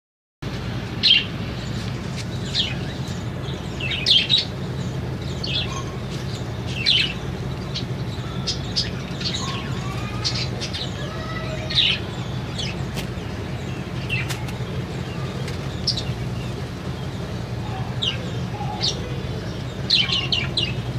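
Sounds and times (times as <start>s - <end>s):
steady low hum: 0.4s - 20.9s
parrots warbling chatter: 7.8s - 20.8s.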